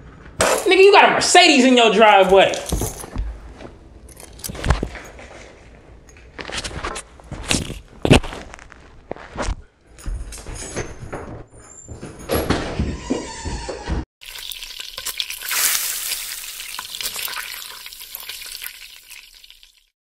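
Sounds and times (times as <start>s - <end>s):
footsteps: 2.2s - 5.7s, 6.4s - 14.0s
food frying in hot oil: 14.2s - 20.0s.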